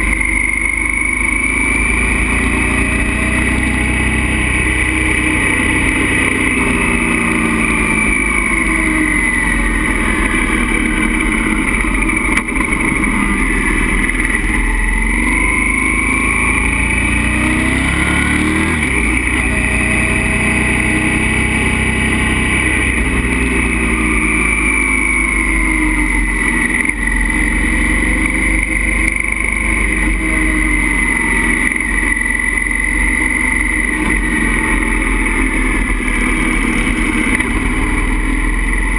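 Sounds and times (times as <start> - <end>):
motorcycle engine revving: 0.0 - 38.9.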